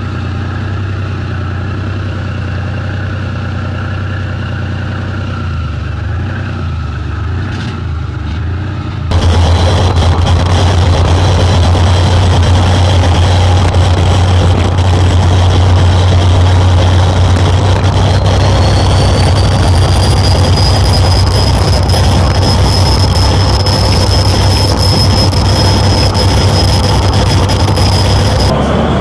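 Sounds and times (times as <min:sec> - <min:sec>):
thin high whine: 0:09.1 - 0:28.6
boat engines droning: 0:09.1 - 0:29.0
rushing wind and water: 0:19.4 - 0:29.0.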